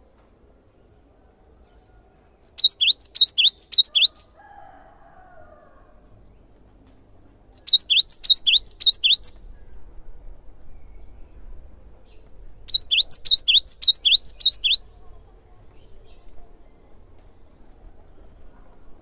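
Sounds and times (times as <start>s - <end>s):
bird singing high whistled notes: 2.4s - 4.3s, 7.6s - 9.4s, 12.7s - 14.8s.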